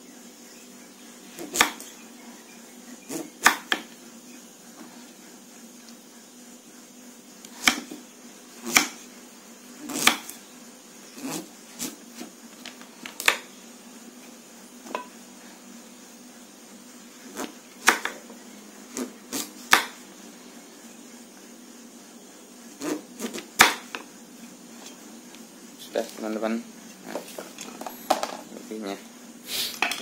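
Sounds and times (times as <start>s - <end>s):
knife chopping on wooden board: 1.4s - 1.9s, 3.1s - 3.9s, 7.5s - 8.0s, 8.6s - 9.0s, 9.8s - 10.3s, 13.2s - 13.5s, 17.3s - 18.2s, 18.9s - 20.0s, 22.8s - 24.1s.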